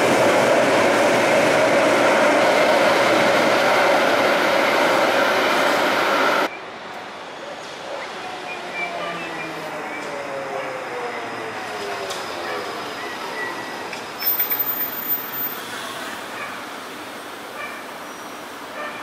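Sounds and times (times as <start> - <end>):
train rumbling out of station: 0.0 - 6.5
street noise: 0.0 - 19.0.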